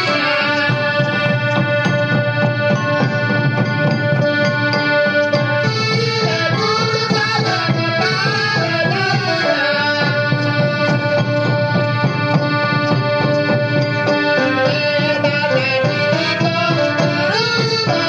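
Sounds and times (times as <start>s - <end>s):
wavering melody line: 0.0s - 7.7s
accordion-like held notes: 0.0s - 18.0s
drum beat: 0.0s - 18.0s.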